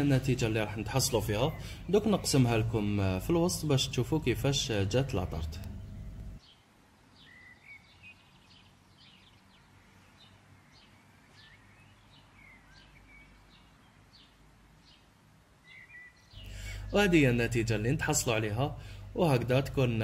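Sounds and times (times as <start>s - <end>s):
low steady hiss: 0.0s - 20.0s
bird chirps and twitters: 0.2s - 2.7s, 7.2s - 17.2s.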